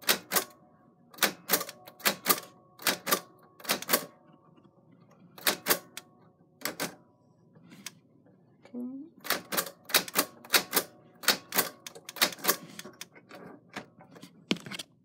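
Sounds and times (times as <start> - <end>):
typewriter keys clacking: 1.2 - 4.1, 9.3 - 13.1.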